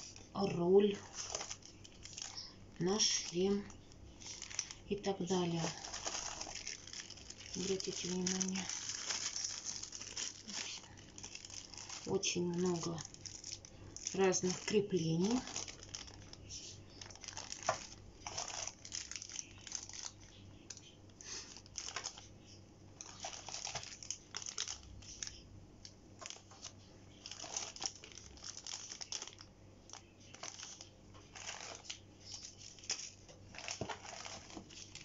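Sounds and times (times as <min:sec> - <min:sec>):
plastic bags crinkling: 0:00.0 - 0:25.5, 0:26.1 - 0:35.0.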